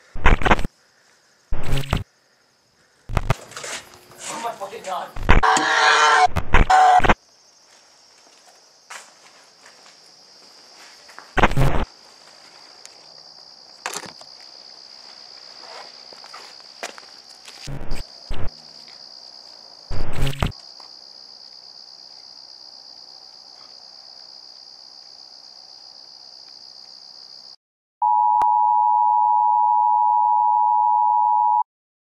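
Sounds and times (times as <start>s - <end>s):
high insect trill: 0.6s - 27.6s
loud electronic beep tone: 5.2s - 7.2s
heavy footsteps on concrete: 7.6s - 11.4s, 15.1s - 17.6s.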